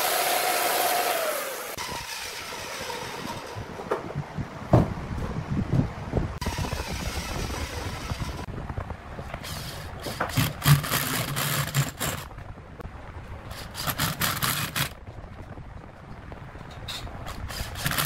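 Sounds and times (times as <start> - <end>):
log scraping on workbench: 9.4 - 12.3.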